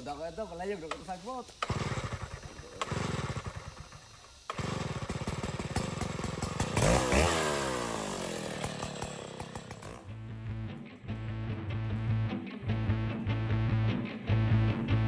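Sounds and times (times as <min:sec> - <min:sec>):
chainsaw revving: 0:00.9 - 0:10.1
chainsaw starting and running: 0:00.9 - 0:10.1.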